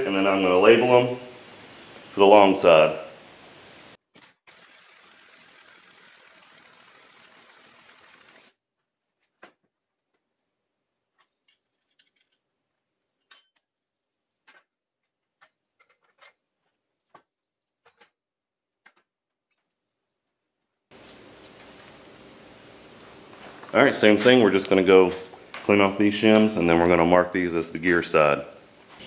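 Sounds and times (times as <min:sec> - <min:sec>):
faint steady hiss: 0:00.0 - 0:04.0, 0:20.9 - 0:29.0
small parts and tools clicking: 0:04.1 - 0:08.6, 0:11.1 - 0:12.6.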